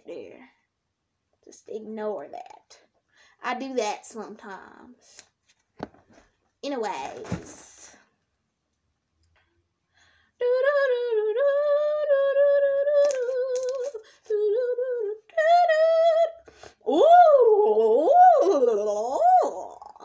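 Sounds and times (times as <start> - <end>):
person humming: 11.2 - 20.0.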